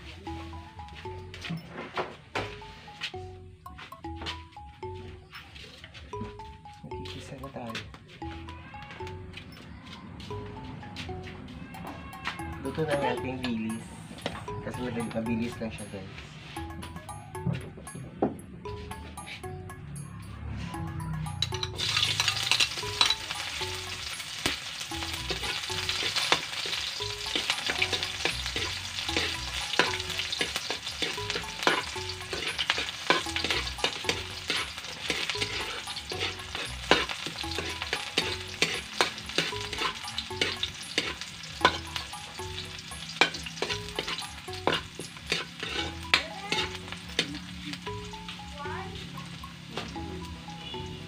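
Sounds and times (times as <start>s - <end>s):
vegetables sizzling in a wok: 21.6s - 50.4s
metal spatula scraping a wok: 21.8s - 23.4s, 25.3s - 42.1s, 43.1s - 47.4s.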